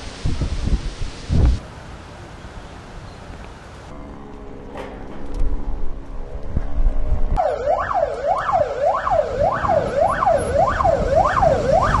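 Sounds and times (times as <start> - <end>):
low vehicle rumble: 3.8 - 12.0
fire engine siren wailing: 7.4 - 12.0.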